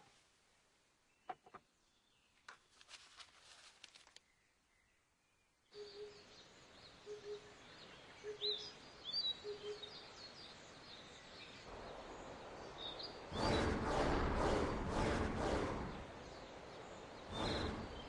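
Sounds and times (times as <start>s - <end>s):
birds chirping: 4.2s - 13.8s, 15.4s - 18.0s
loud rushing whoosh: 11.7s - 18.0s.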